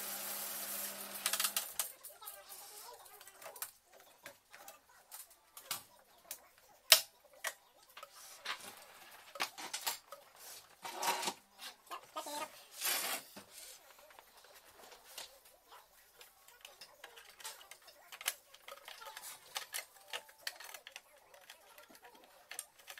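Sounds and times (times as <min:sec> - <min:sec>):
cover plate scraping: 0:08.2 - 0:13.8
plastic and metal parts clicking: 0:16.2 - 0:22.9.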